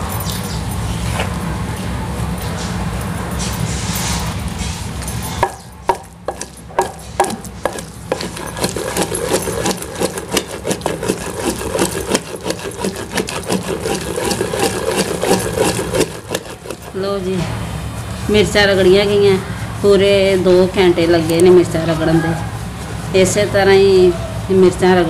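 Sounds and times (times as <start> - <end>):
pestle grinding in mortar: 5.4 - 17.2.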